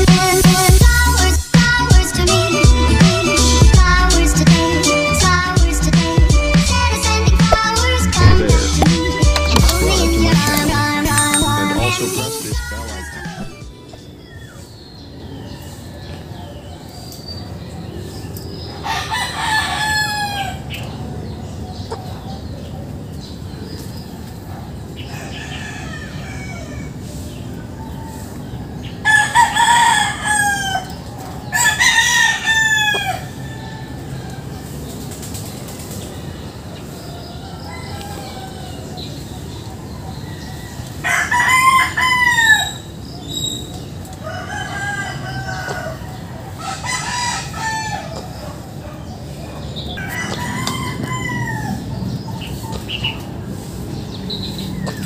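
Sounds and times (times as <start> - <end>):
roosters crowing: 0.0 - 16.6, 18.5 - 20.9, 25.0 - 35.0, 36.2 - 55.0
rooster crowing: 12.1 - 13.8, 18.8 - 20.7, 25.1 - 27.0, 29.0 - 34.5, 37.0 - 39.0, 40.0 - 42.9, 44.2 - 48.3, 50.0 - 51.9.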